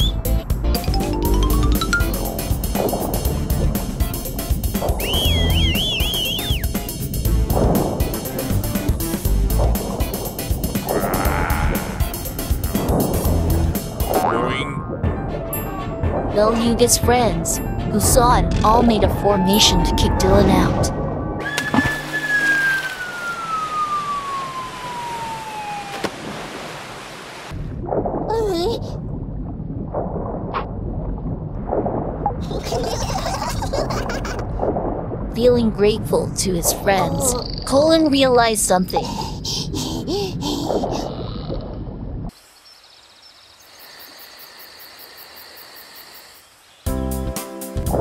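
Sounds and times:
cartoon bubbling water: 0.8s - 3.6s, 14.0s - 15.2s
cartoon falling whistle: 5.0s - 6.7s, 21.4s - 26.0s
splash into water: 21.4s - 28.3s.

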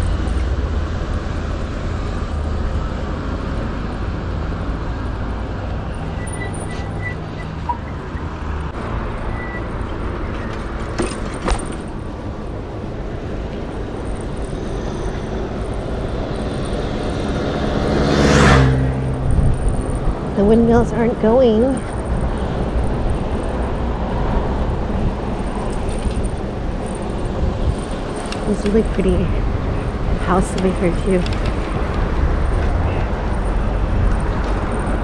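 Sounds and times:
traffic rumble: 0.0s - 35.0s
vehicle passing close: 13.7s - 35.0s.

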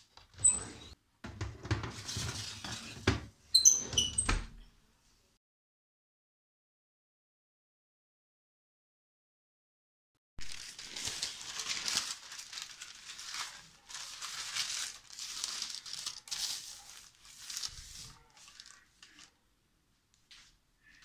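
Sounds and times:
parchment paper rustling and crinkling: 1.9s - 3.0s, 10.4s - 19.4s.

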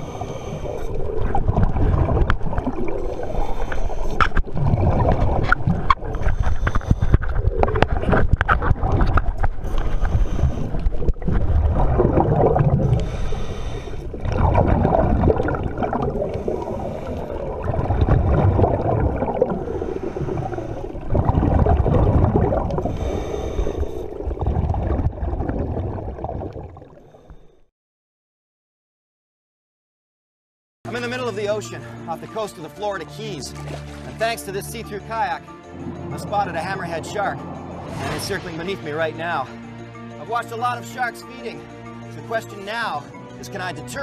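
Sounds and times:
regulator inhale hiss: 0.0s - 1.1s, 3.2s - 4.2s, 6.1s - 7.4s, 9.6s - 10.9s, 12.9s - 14.1s, 22.9s - 24.2s
exhale bubbling rumble: 0.0s - 27.6s.

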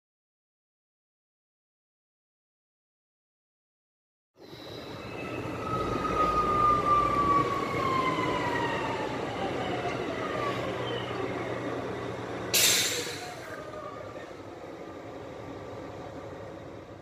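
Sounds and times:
locomotive engine drone: 4.4s - 17.0s
loud hiss of air: 12.5s - 13.6s.

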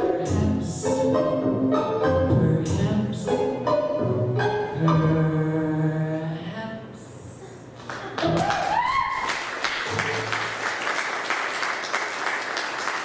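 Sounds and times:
audience applauding: 7.8s - 13.0s
single rising cheer: 8.3s - 10.4s.

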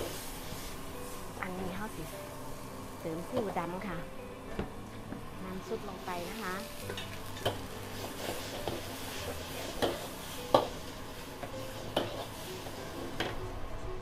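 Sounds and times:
metal ladle scraping a wok: 6.8s - 11.0s, 11.6s - 13.3s.

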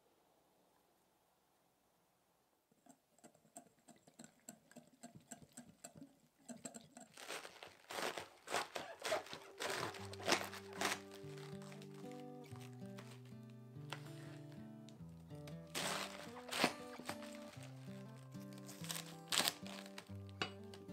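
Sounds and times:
music: 9.2s - 20.9s.

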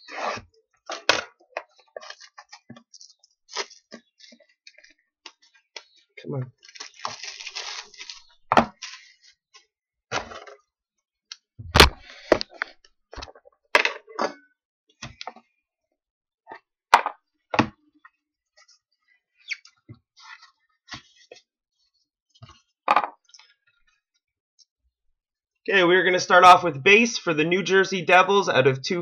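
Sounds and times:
cardboard crinkling as cut: 6.6s - 9.2s
box thump: 11.6s - 12.4s.

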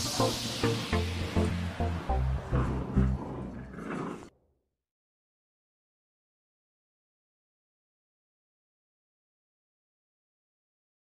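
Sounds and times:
music with bass beat: 0.0s - 3.2s.

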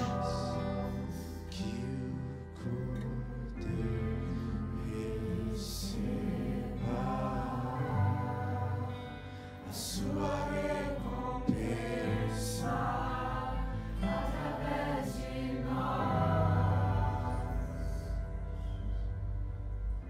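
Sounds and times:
man singing lead: 0.0s - 13.7s
backing singers in harmony: 0.0s - 18.3s
acoustic guitar: 0.0s - 20.0s.

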